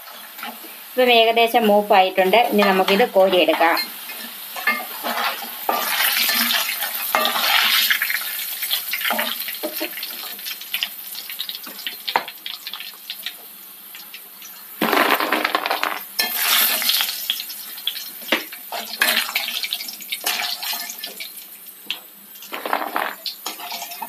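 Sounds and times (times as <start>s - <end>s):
chips sizzling in hot oil: 0.0s - 24.0s
spatula and strainer scraping pan: 2.5s - 7.9s.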